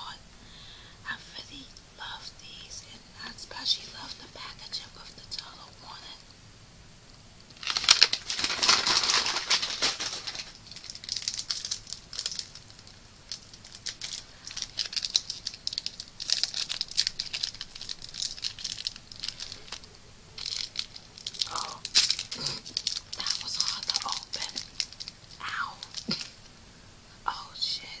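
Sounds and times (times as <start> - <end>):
plastic wrapper crinkling: 7.6 - 26.5.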